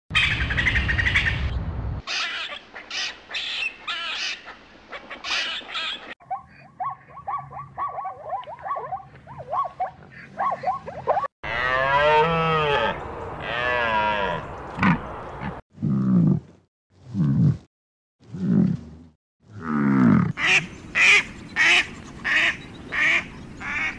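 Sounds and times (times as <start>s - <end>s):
loud wavering animal bellow: 11.4s - 15.0s.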